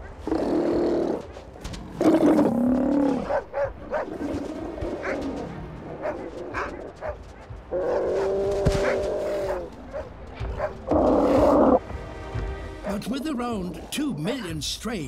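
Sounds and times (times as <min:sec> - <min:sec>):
dogs barking: 0:01.1 - 0:11.8.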